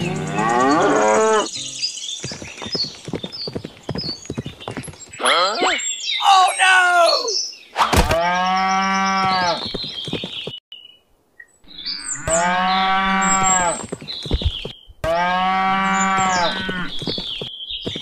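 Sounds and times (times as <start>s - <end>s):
cow mooing: 0.0s - 1.5s, 11.8s - 13.8s, 15.0s - 17.0s.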